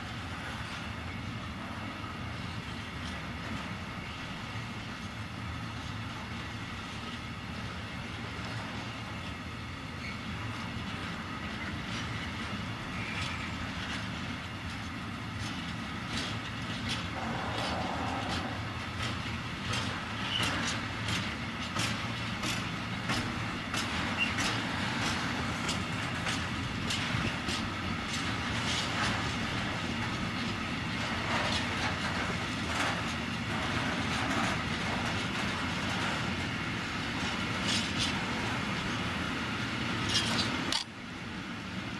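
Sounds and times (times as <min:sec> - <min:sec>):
freight train rumble: 0:00.0 - 0:41.9
wheels clicking over rail joints: 0:00.4 - 0:41.9.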